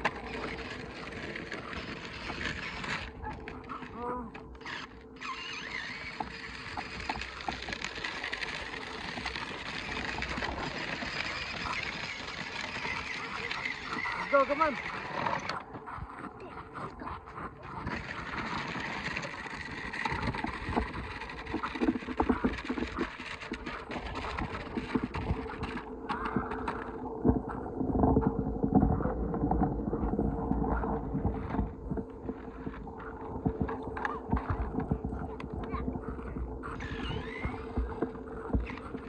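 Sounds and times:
toy motor hum: 0.0s - 26.8s, 35.6s - 39.0s
plastic wheels rattling on gravel: 0.0s - 27.4s, 28.1s - 39.0s.

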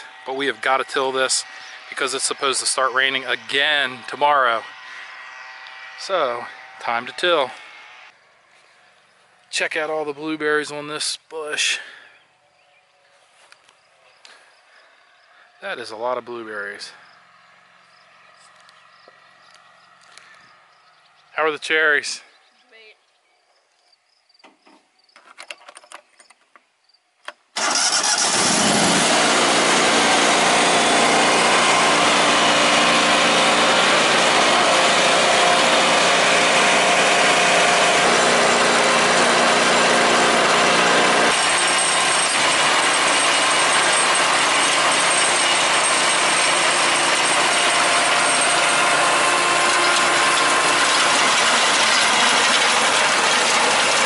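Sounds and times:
tractor engine running: 0.0s - 8.2s, 27.6s - 54.0s
tiller turning soil: 0.0s - 8.7s, 27.6s - 54.0s.

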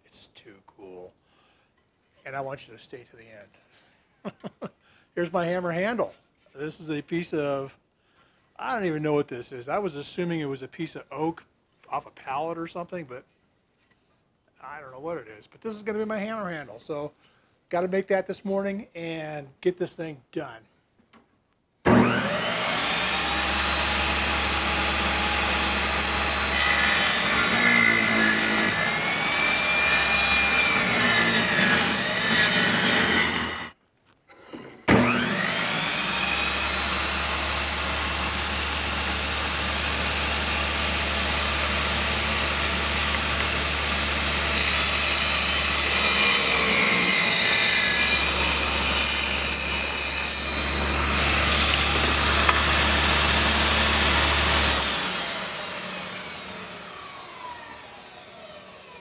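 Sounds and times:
electric power saw cutting wood: 21.9s - 33.8s, 34.9s - 59.0s.

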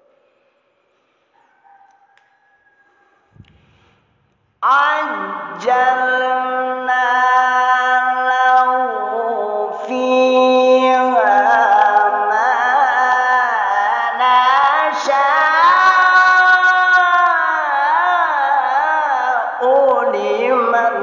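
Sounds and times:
man reciting melodically: 4.6s - 21.0s.

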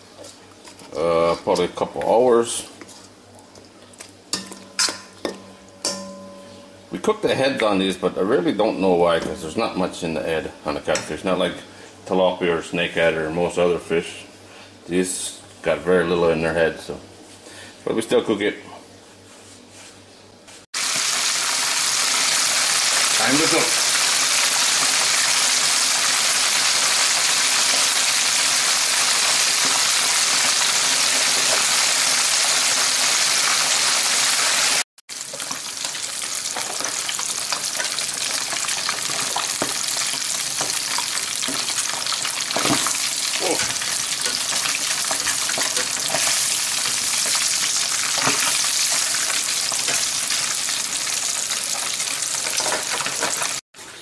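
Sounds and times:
fish sizzling in hot oil: 20.8s - 53.6s.

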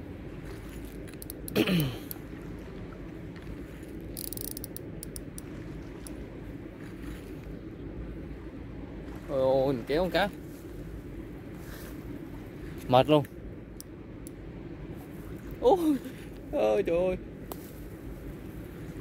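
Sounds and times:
fishing reel ticking: 1.1s - 1.6s, 4.1s - 5.4s.

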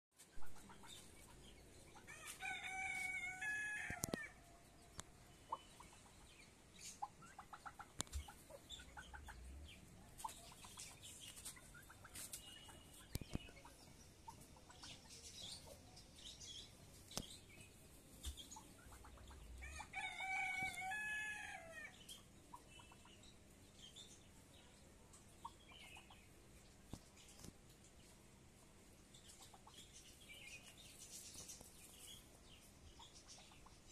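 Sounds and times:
chickens clucking and chirping: 0.2s - 33.9s
rooster crowing: 2.1s - 4.4s, 19.6s - 21.9s.

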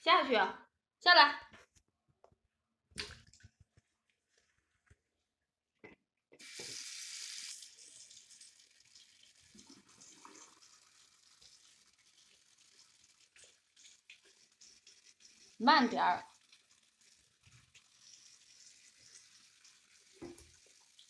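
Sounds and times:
tap water running into basin: 6.4s - 21.0s.

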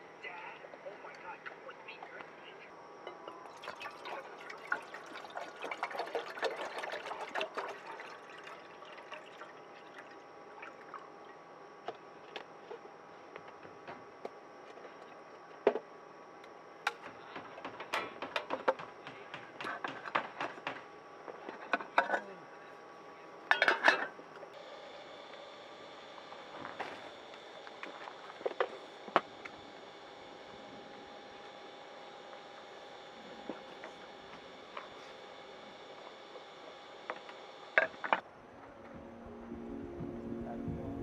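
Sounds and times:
water pouring into metal pot: 3.5s - 11.0s.

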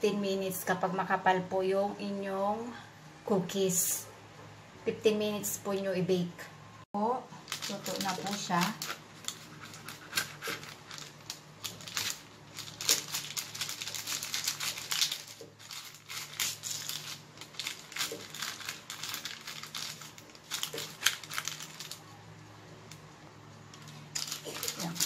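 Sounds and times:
parchment paper crinkling: 7.4s - 22.2s, 23.8s - 25.0s.

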